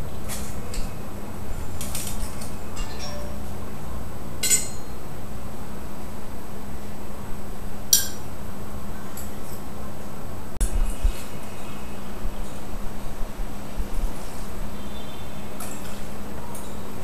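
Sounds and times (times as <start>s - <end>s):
glassware and bar tools clinking: 2.2s - 3.5s, 4.4s - 5.0s, 7.9s - 8.3s.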